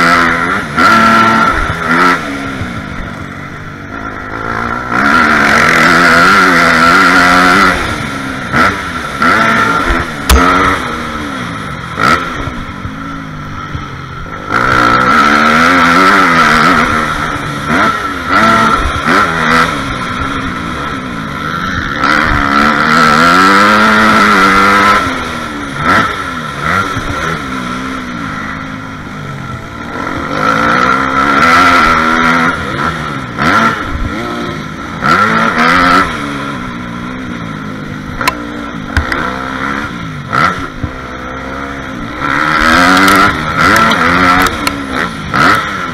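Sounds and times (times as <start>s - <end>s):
dirt bike engine revving: 0.0s - 45.9s
sharp knocks: 10.3s - 11.0s.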